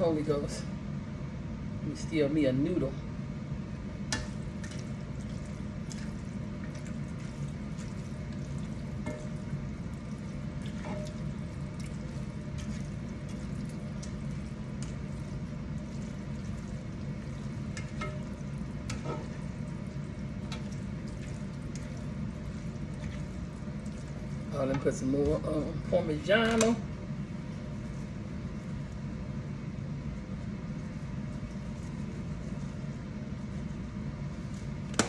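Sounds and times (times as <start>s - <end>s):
steady low hum: 0.0s - 35.0s
pasta sauce simmering: 4.2s - 24.7s.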